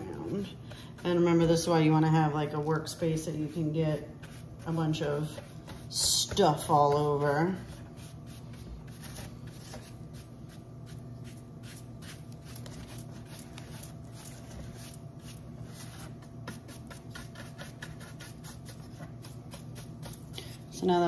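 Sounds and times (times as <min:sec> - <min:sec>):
dry paintbrush brushing plastic: 0:00.0 - 0:21.0.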